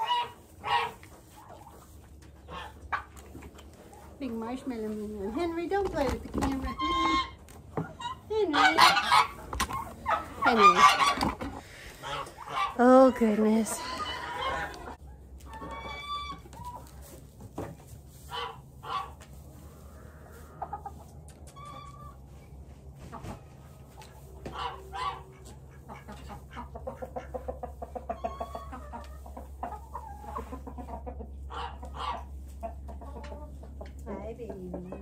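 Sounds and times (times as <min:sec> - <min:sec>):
chickens clucking: 0:00.0 - 0:35.0
roosters crowing: 0:08.6 - 0:15.0.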